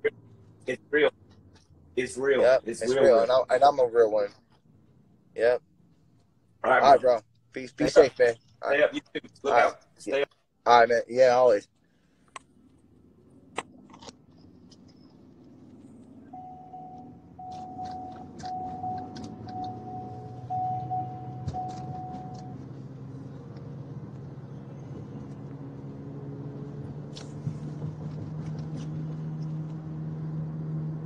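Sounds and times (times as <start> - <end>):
car engine hum: 0.0 - 31.0
dashboard warning chime: 16.3 - 22.7.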